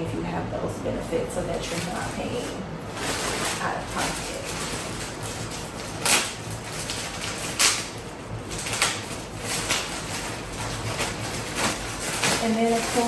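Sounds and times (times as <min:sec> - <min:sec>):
plastic bag rustling and crinkling: 0:01.6 - 0:13.0
sharp plastic crackles: 0:02.9 - 0:13.0.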